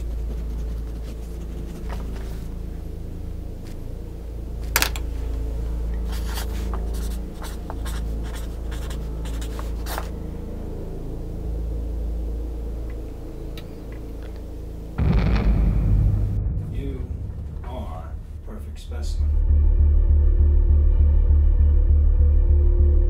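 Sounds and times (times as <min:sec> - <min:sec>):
pen scratching on paper: 0:00.0 - 0:02.5, 0:06.0 - 0:10.2
steady low hum: 0:00.0 - 0:23.0.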